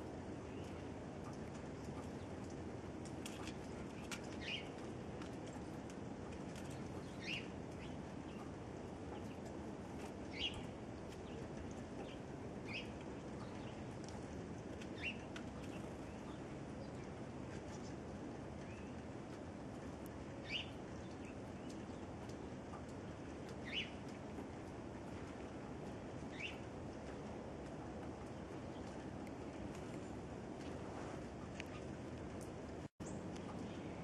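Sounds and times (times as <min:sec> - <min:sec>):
chickadees chirping: 0:04.3 - 0:04.8, 0:06.6 - 0:08.5, 0:10.3 - 0:10.8, 0:14.9 - 0:17.0, 0:20.4 - 0:20.8, 0:23.6 - 0:24.0, 0:26.3 - 0:26.6.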